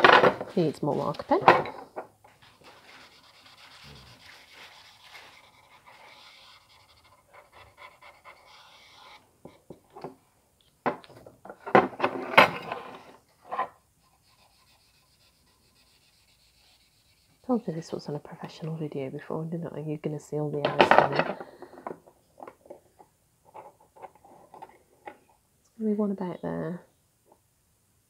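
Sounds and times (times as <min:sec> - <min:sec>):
marker pen rubbing on steel: 0:02.4 - 0:09.2, 0:14.0 - 0:17.8.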